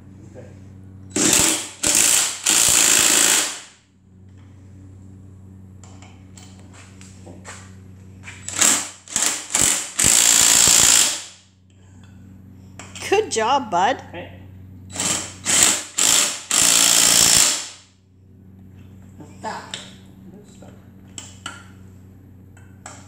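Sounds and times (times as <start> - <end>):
impact driver bursts: 1.1 - 3.8, 8.4 - 11.4, 14.9 - 17.8.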